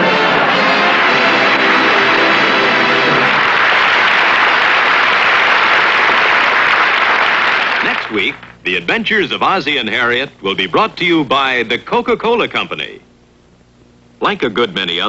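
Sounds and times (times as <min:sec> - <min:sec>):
theme music: 0:00.0 - 0:03.9
audience applause: 0:00.0 - 0:08.5.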